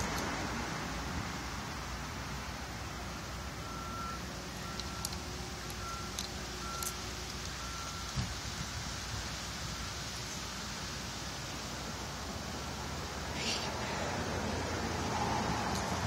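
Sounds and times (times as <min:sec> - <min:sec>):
traffic hum: 0:00.0 - 0:16.0
vehicle reversing alarm beeping: 0:03.0 - 0:08.3.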